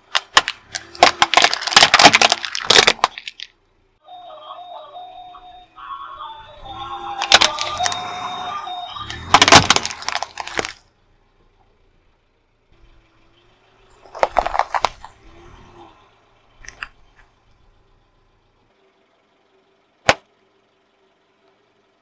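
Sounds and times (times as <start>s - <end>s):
plastic cracking under car tyre: 0.0s - 3.6s, 7.2s - 8.0s, 9.1s - 10.8s, 14.0s - 15.2s.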